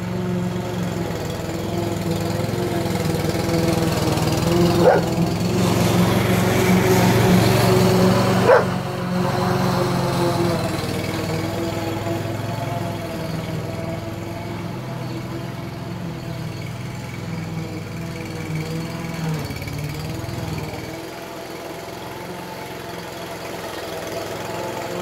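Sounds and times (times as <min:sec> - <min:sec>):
lawn mower engine running: 0:00.0 - 0:25.0
dog barking: 0:04.8 - 0:05.1, 0:08.4 - 0:08.7.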